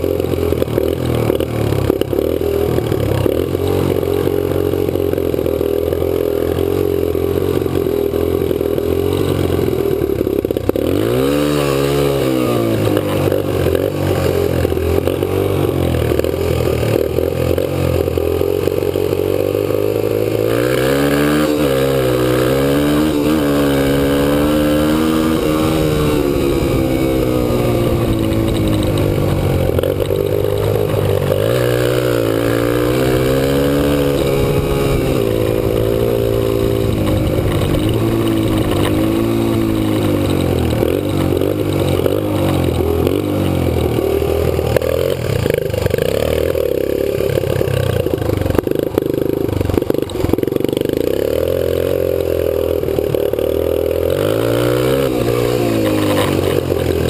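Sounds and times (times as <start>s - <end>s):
motorcycle engine accelerating: 0.0s - 57.0s
knocks and rattles: 27.0s - 32.7s, 35.8s - 44.0s.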